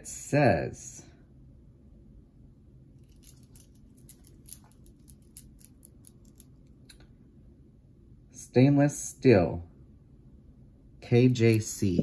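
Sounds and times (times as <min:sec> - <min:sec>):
jewelry clicking and clinking: 0:03.0 - 0:07.0.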